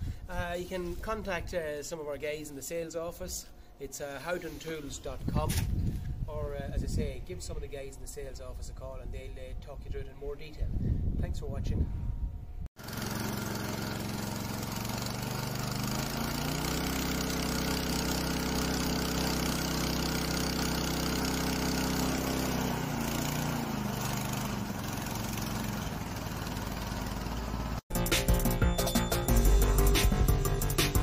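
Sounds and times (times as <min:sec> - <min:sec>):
petrol engine revving: 0:12.8 - 0:27.8.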